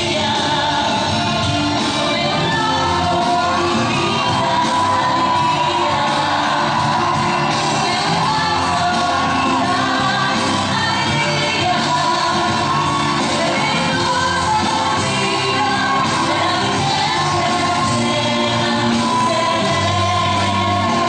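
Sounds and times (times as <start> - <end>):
dance music with singing: 0.0 - 21.0.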